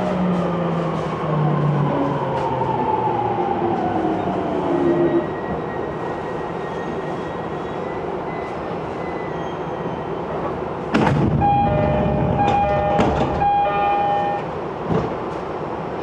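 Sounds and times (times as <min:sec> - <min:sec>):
train rumble: 0:00.0 - 0:09.0, 0:09.8 - 0:16.0
train clatter: 0:10.4 - 0:13.6, 0:14.4 - 0:15.6
on-and-off ringing tone: 0:11.4 - 0:14.4.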